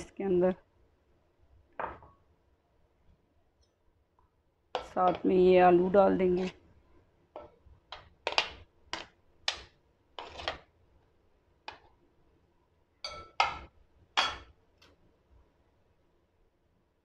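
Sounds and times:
spoon clinking against glass bowl: 0:13.0 - 0:13.6.

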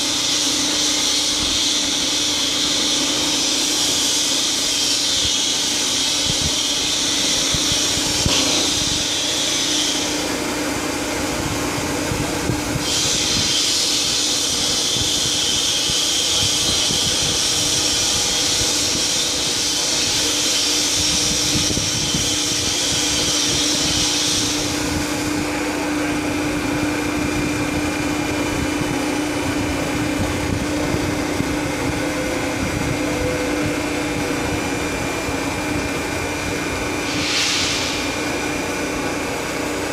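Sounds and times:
high hydraulic hiss: 0:00.0 - 0:10.4, 0:12.7 - 0:25.5, 0:36.9 - 0:38.7
hydraulic pump hum: 0:00.0 - 0:39.9.

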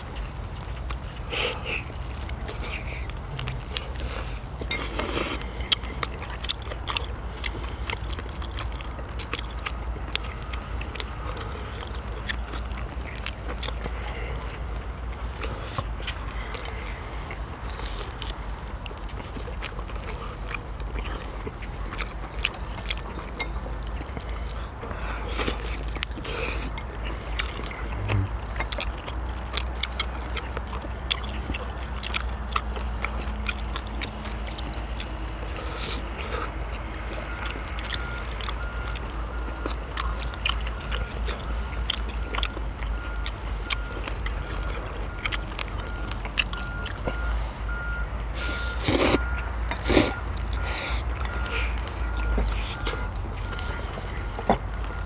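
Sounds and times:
steady low hum: 0:00.0 - 0:32.3
people chewing and biting: 0:00.0 - 0:55.0.

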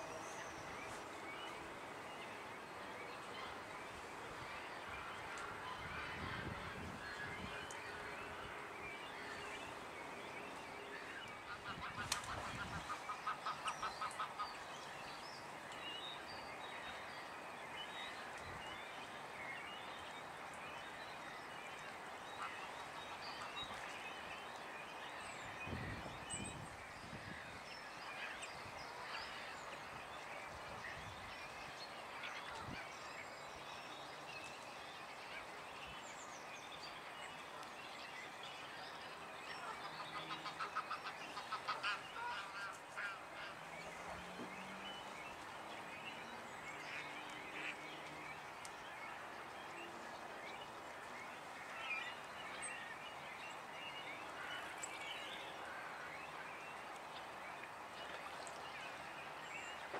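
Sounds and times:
songbirds chirping: 0:00.0 - 0:59.9
waterfowl honking: 0:39.6 - 0:43.6.

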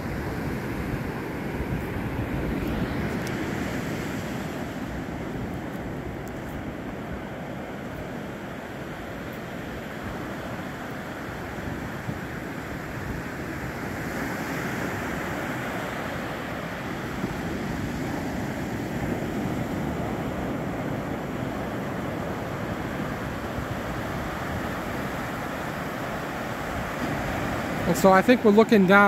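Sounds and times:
ocean surf breaking on beach: 0:00.0 - 0:29.0.

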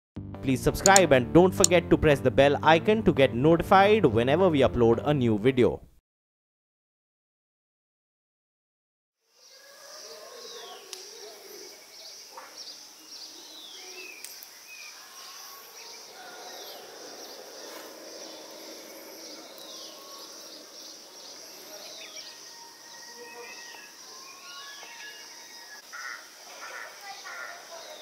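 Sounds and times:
faint bird chirps: 0:09.3 - 0:28.0
high insect drone: 0:09.3 - 0:28.0.

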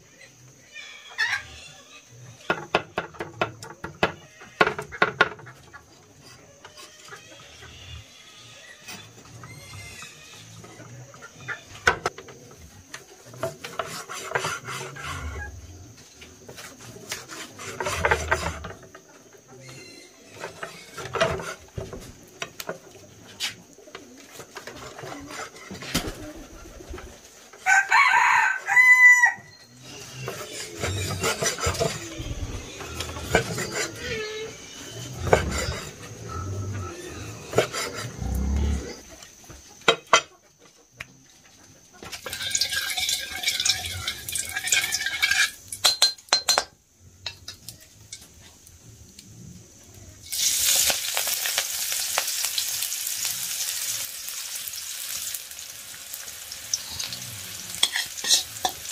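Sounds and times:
rooster crowing: 0:27.6 - 0:29.6.

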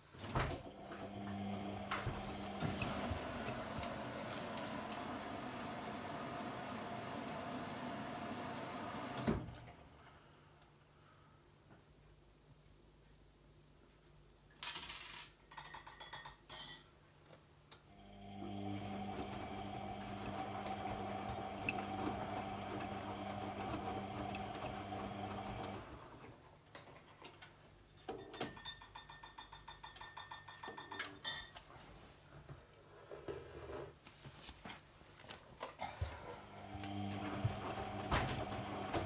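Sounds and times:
washing machine motor humming: 0:00.3 - 0:09.8, 0:17.9 - 0:26.4, 0:36.3 - 0:39.0.

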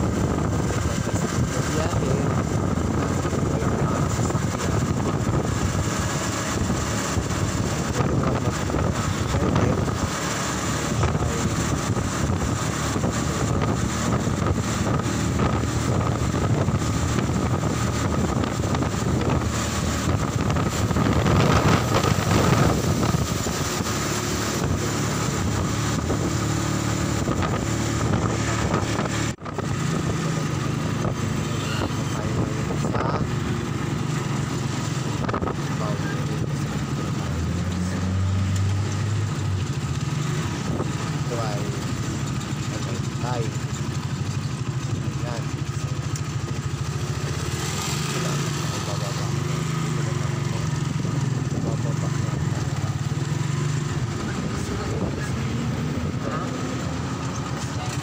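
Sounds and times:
motorcycle engine running: 0:00.0 - 0:58.0
wind buffeting microphone: 0:00.0 - 0:58.0.

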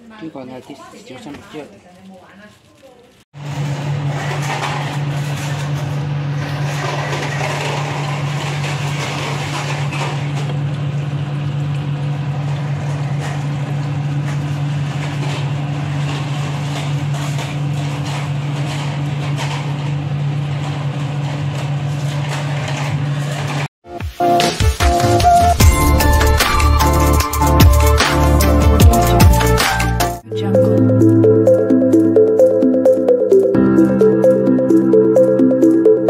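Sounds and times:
low appliance hum: 0:00.1 - 0:23.7.

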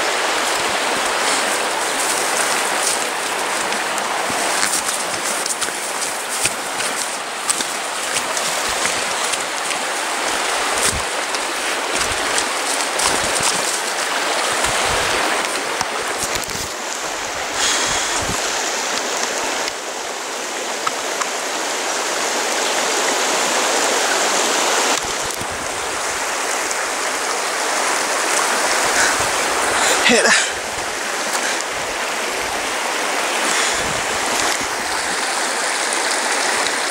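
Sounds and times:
rustling through undergrowth: 0:00.0 - 0:18.4
river rushing over stones: 0:00.0 - 0:36.9.

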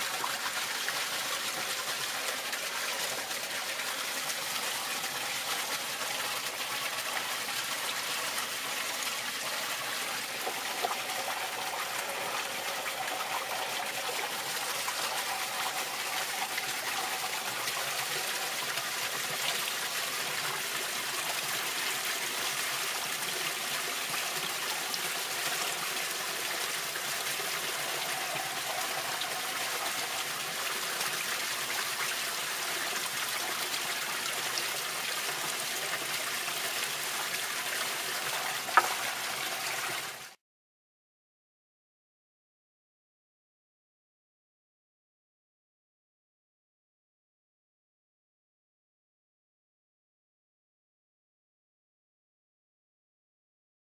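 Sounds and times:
water trickling from a pipe: 0:00.0 - 0:40.4.

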